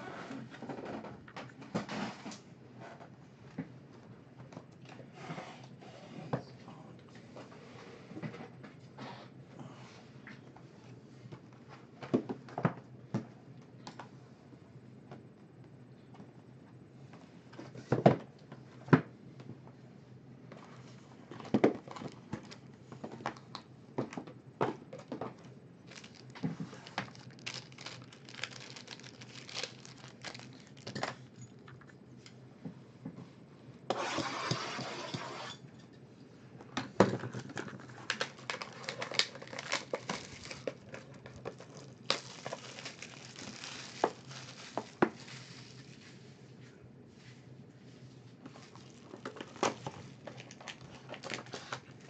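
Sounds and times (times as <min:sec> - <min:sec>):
plastic wrap crinkling: 0:21.8 - 0:22.7, 0:25.8 - 0:31.4, 0:37.5 - 0:46.1, 0:48.5 - 0:52.0
dense tearing noise: 0:25.9 - 0:30.9, 0:38.1 - 0:45.8.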